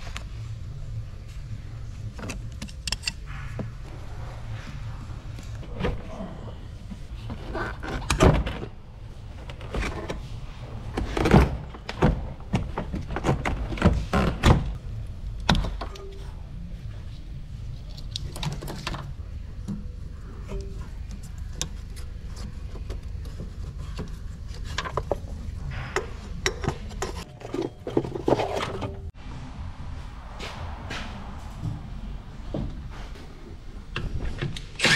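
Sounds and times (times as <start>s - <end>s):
steady low hum: 0.0s - 13.6s, 14.7s - 34.8s
car parts clicking and rattling: 2.1s - 3.9s, 6.8s - 16.1s, 17.8s - 29.2s, 32.5s - 34.9s.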